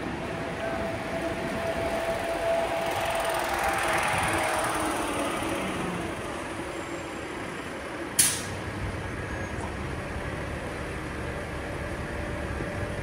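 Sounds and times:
city traffic rumble: 0:00.0 - 0:13.0
bus air brakes hissing: 0:08.2 - 0:08.6.

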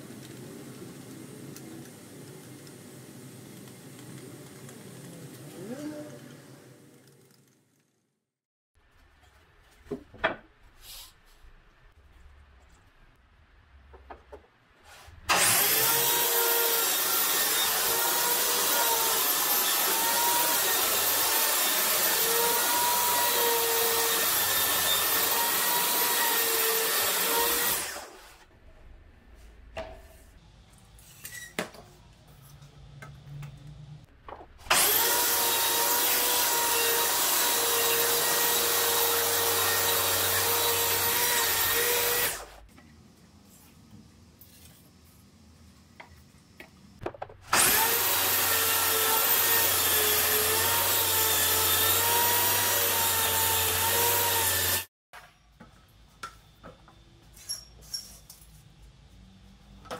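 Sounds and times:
track saw cutting wood: 0:15.3 - 0:28.4, 0:34.7 - 0:42.6, 0:47.5 - 0:54.9.

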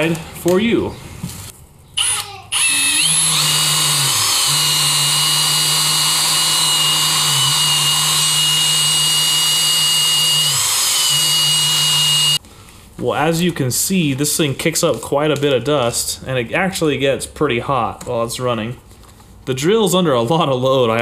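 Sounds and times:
drill spinning wire brush: 0:02.0 - 0:12.4.

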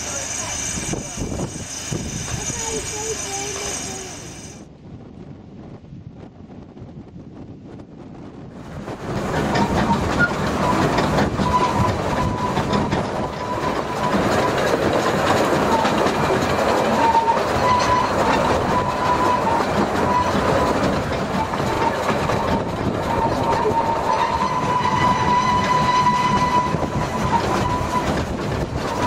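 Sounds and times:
train wheels clattering on track: 0:00.0 - 0:04.7, 0:08.6 - 0:29.0
faint wind: 0:00.0 - 0:29.0
wheels squealing on curves: 0:09.3 - 0:29.0.

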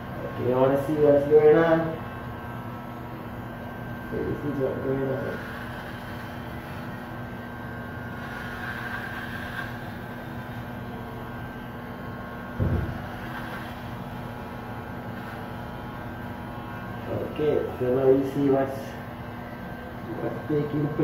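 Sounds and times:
electric hair clippers buzzing: 0:00.0 - 0:21.0
low thump: 0:12.6 - 0:13.0.

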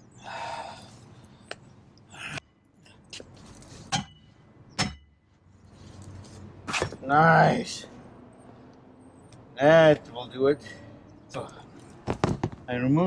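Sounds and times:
hammer striking steel bracket: 0:03.9 - 0:04.2, 0:04.8 - 0:05.2.

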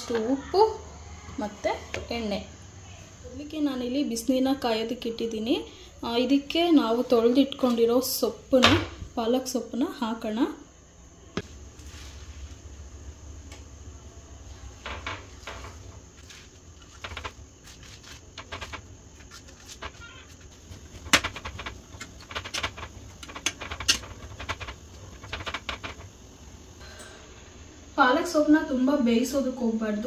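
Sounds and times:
spinach leaves rustling: 0:16.2 - 0:20.7.

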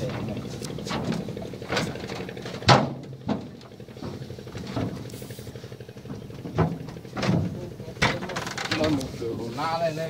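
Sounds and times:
steady low hum: 0:00.0 - 0:10.0
wooden boards knocking: 0:00.8 - 0:05.0, 0:06.0 - 0:08.9.

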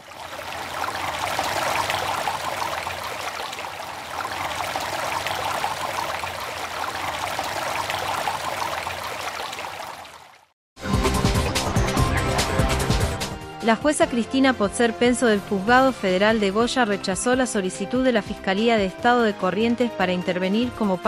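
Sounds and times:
running water rushing: 0:00.0 - 0:10.5.

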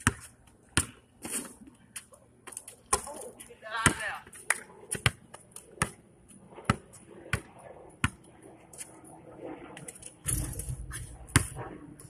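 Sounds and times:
basketball bouncing on asphalt: 0:00.0 - 0:08.4, 0:11.0 - 0:11.6
low rumbling noise: 0:07.0 - 0:12.0.

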